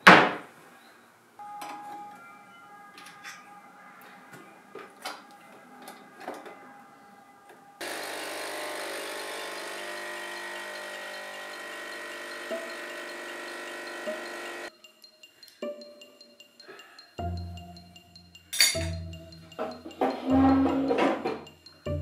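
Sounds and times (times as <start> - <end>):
espresso machine pump humming: 7.8 - 14.7.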